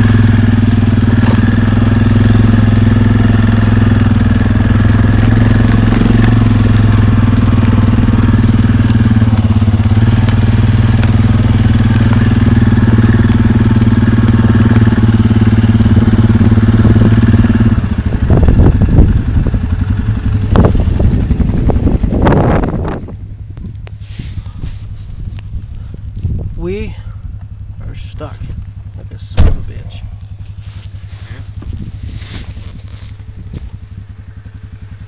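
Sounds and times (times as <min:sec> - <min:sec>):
atv engine running: 0:00.0 - 0:35.0
wind gusts buffeting microphone: 0:16.6 - 0:27.3, 0:31.5 - 0:32.6.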